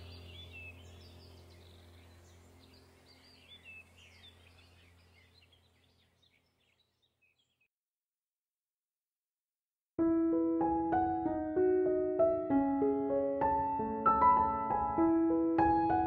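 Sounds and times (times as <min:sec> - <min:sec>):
low steady hum: 0:00.0 - 0:06.4
faint birds chirping: 0:00.0 - 0:07.8.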